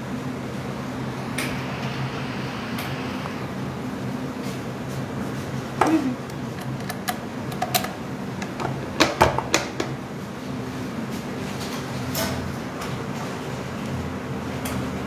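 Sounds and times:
steady low hum: 0.0s - 9.2s.

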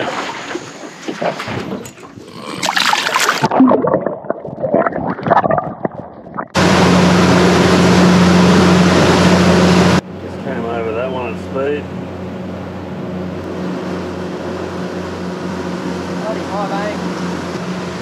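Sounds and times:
water splashing: 0.0s - 7.9s
boat motor droning: 6.5s - 18.0s.

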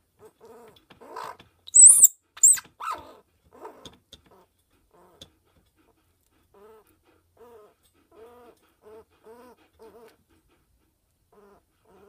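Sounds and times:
baby squirrel crying: 1.1s - 3.2s.

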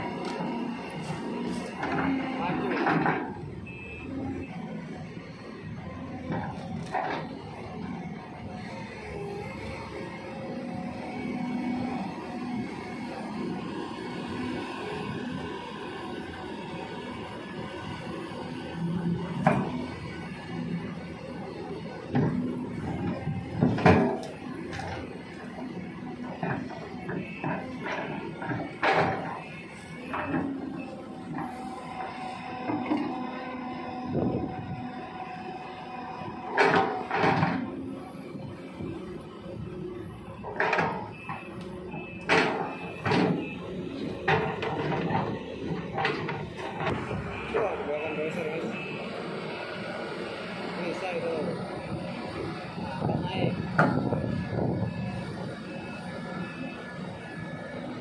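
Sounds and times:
diesel engine hum: 0.0s - 58.0s.

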